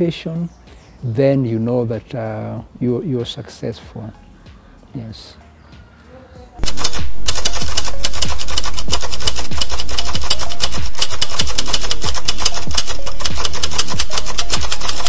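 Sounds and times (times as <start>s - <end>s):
electronic music with fast beat: 6.6s - 15.0s.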